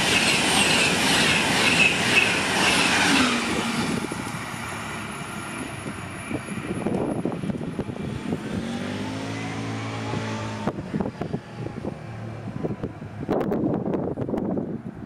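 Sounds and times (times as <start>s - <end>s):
electric train rolling: 0.0s - 9.0s.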